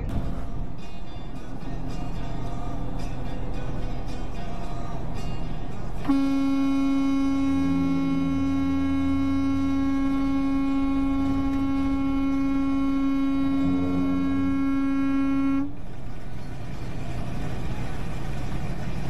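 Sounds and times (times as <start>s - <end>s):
truck driving rumble: 0.0s - 19.0s
truck horn long blast: 6.0s - 15.9s.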